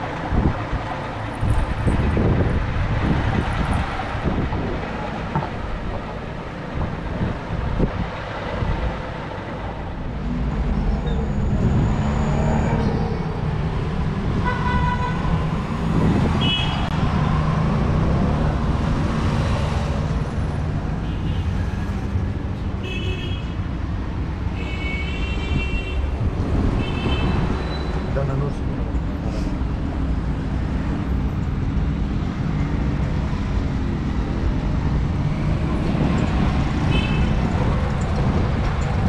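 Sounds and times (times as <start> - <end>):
traffic engines rumbling: 0.0 - 39.0
vehicle horn toots: 14.4 - 15.2.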